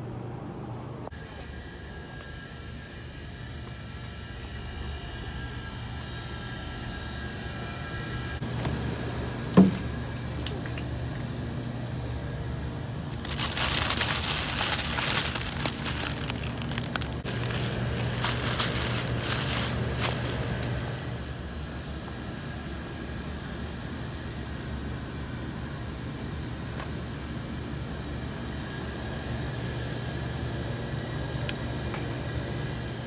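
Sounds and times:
steady low hum: 0.0 - 33.0
plastic packaging crinkling: 13.1 - 21.3.

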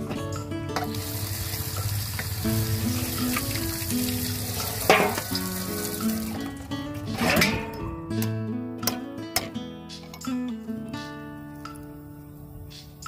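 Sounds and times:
acoustic guitar music: 0.0 - 13.0
water splashing and draining: 0.8 - 6.7.

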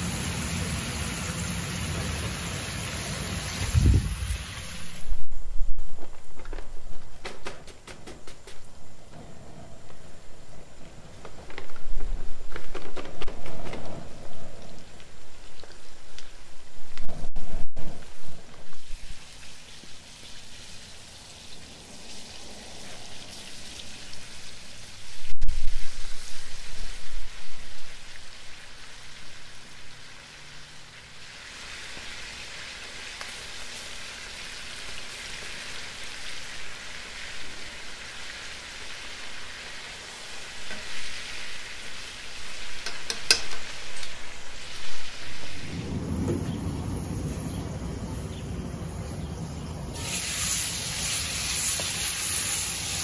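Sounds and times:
chicken sizzling in hot oil: 0.0 - 5.1, 18.8 - 45.8, 49.9 - 53.0.

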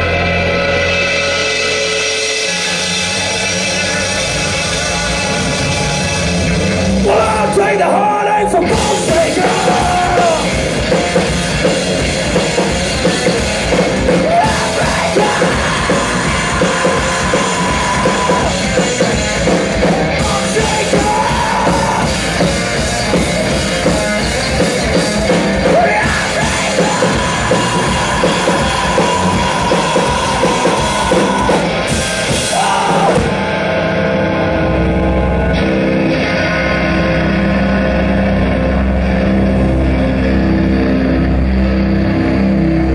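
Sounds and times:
drum kit played hard: 0.0 - 7.8, 8.6 - 33.9
electric guitar: 0.0 - 42.9
man singing: 7.0 - 10.6, 14.2 - 18.7, 20.0 - 22.2, 25.6 - 31.7, 32.4 - 33.4.

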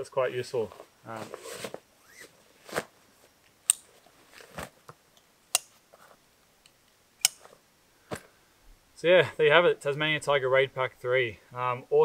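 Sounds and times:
backpack clicks and rustles: 0.7 - 3.0, 3.8 - 4.8.

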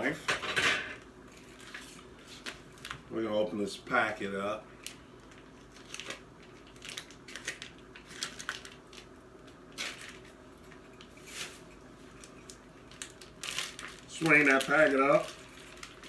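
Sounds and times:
plastic packaging crinkling: 4.8 - 16.0.

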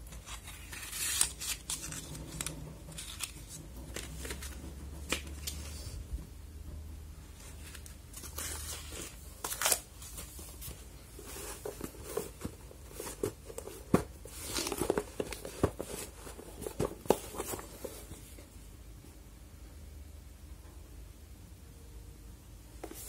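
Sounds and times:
hands handling cardboard parcel: 0.0 - 5.9, 7.4 - 18.4.

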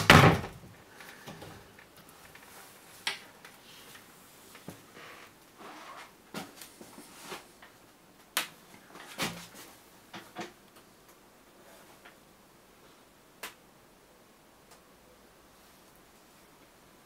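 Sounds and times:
knocks and clicks in a room: 7.6 - 11.3, 11.9 - 13.7, 14.5 - 15.0.

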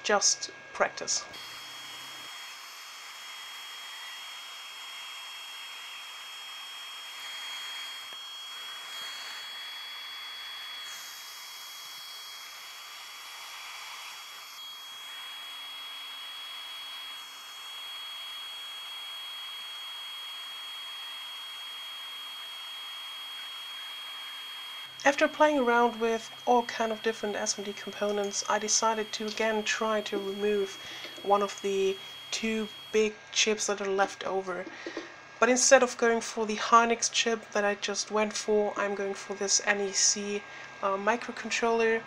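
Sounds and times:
thin high whine: 1.3 - 41.9
hot air blowing: 1.4 - 33.2, 34.6 - 35.4.

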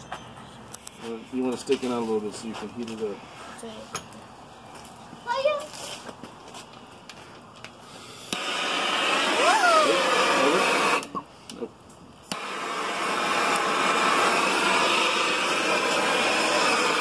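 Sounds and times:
gas torch burning hiss: 7.6 - 17.0
torch trigger clicks: 12.2 - 17.0.

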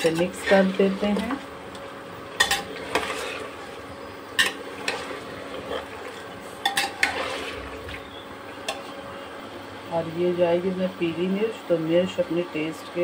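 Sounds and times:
spoon clinking and scraping a pot: 2.4 - 3.5, 4.4 - 7.6.

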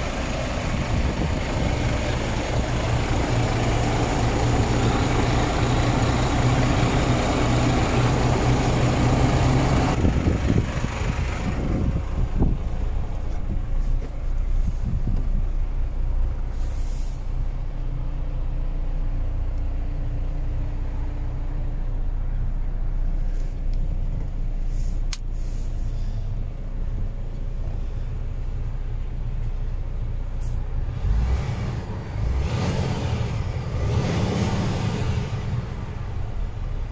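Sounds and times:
diesel truck engine idling: 0.0 - 36.9
air brake hisses: 16.5 - 17.4, 24.6 - 26.4.

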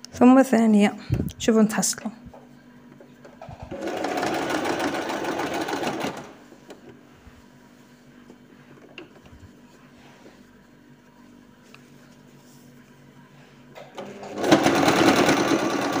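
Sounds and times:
sewing machine stitching: 3.5 - 6.4, 14.0 - 16.0.

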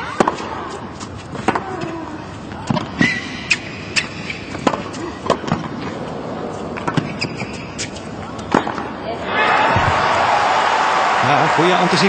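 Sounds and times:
racket hitting tennis ball: 0.0 - 2.0, 2.6 - 5.8, 6.7 - 8.9
crowd noise: 8.2 - 12.0.

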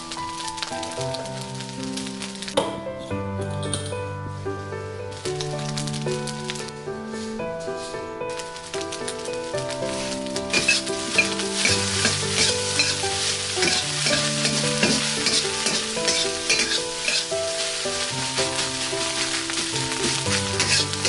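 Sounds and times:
rice sizzling in a wok: 0.0 - 2.6, 8.3 - 21.0
soft background music: 0.0 - 21.0
spatula scraping a wok: 9.9 - 21.0.

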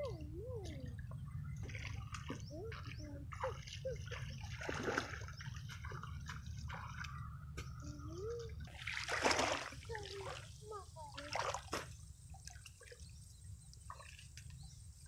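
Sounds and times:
feet splashing in muddy water: 1.4 - 10.5, 11.2 - 13.0.

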